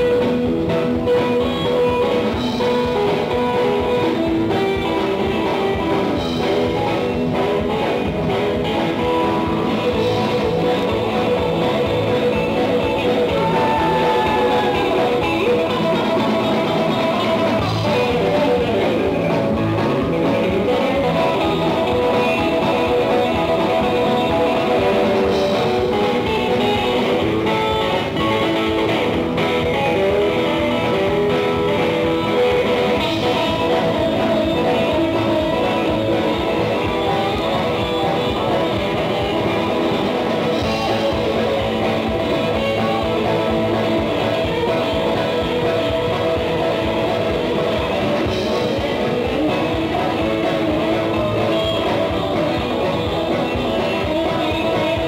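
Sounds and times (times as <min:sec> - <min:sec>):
bass: 0:00.0 - 0:55.0
drums: 0:00.0 - 0:55.0
electric guitar: 0:00.0 - 0:55.0.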